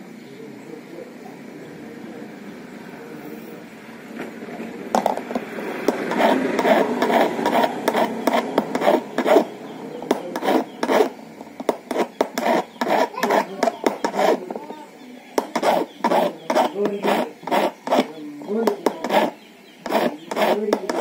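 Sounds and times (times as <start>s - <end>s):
hand file rasping on metal key: 5.9s - 14.6s, 15.4s - 21.0s.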